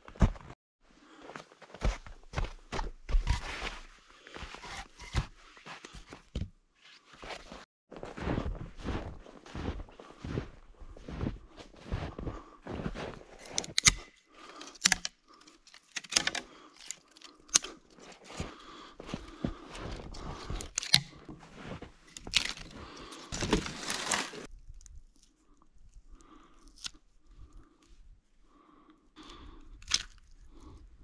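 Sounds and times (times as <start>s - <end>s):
twigs and bark crunching: 12.0s - 27.8s, 29.2s - 30.9s.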